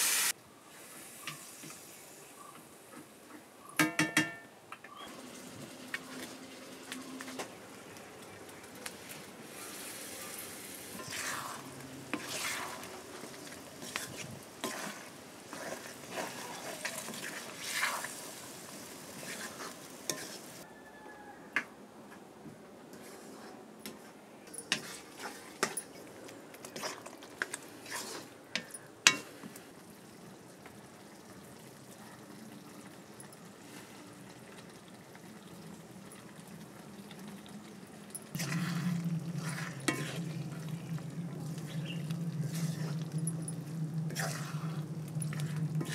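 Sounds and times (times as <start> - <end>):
food sizzling in a wok: 0.0 - 2.2, 5.1 - 7.5, 9.4 - 20.6, 26.8 - 28.3, 38.3 - 45.9
metal spoon scraping a pan: 9.6 - 18.4, 19.1 - 20.6, 24.6 - 25.9, 26.7 - 29.3, 38.4 - 45.9.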